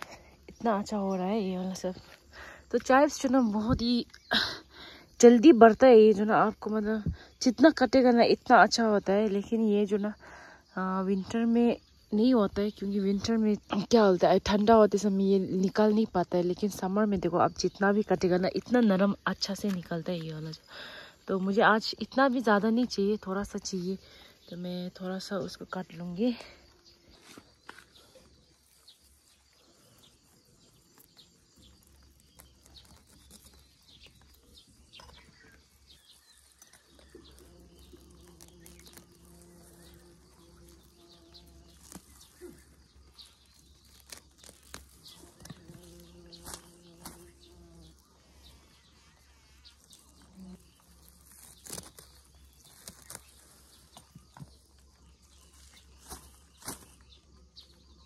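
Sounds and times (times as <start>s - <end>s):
rustling leaves: 17.8s - 58.0s.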